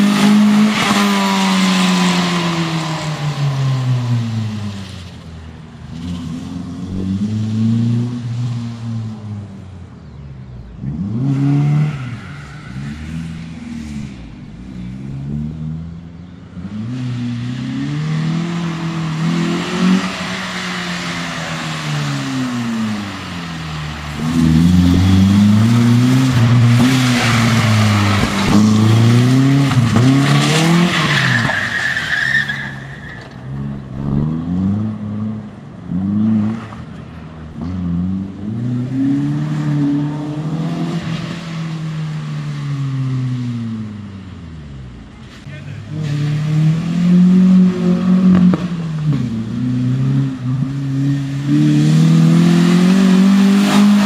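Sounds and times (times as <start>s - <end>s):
car engine revving: 0.0s - 54.0s.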